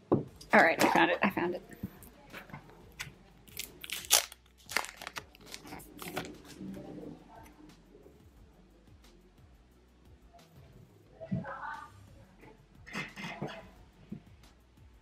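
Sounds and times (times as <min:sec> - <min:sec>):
cards rustling: 0:02.3 - 0:06.7
paper packet crackling: 0:03.4 - 0:06.6.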